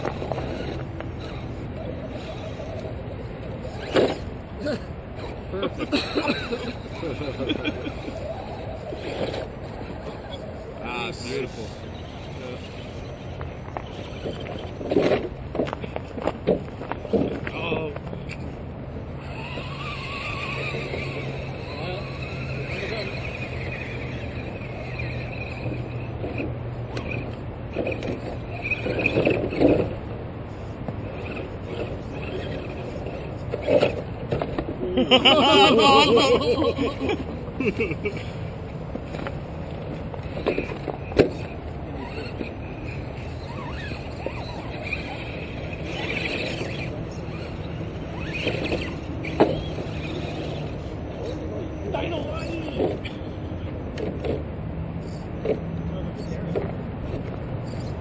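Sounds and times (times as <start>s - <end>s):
toy truck scraping and knocking on wood: 0.0s - 4.5s, 7.8s - 10.5s, 11.2s - 18.6s, 19.2s - 34.8s, 38.1s - 51.4s, 52.0s - 54.5s.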